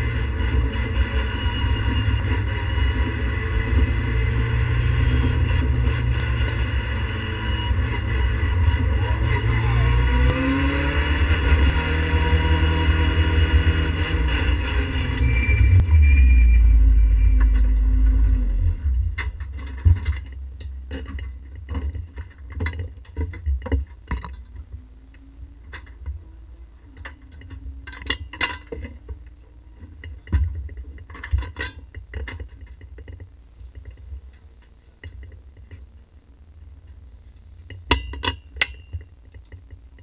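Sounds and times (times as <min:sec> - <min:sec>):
race car engine switching off: 0:00.0 - 0:20.4.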